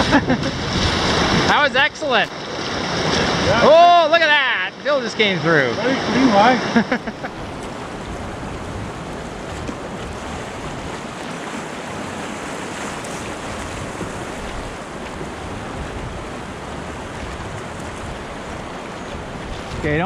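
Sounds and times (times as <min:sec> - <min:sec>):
river rapids rushing: 0:00.0 - 0:20.0.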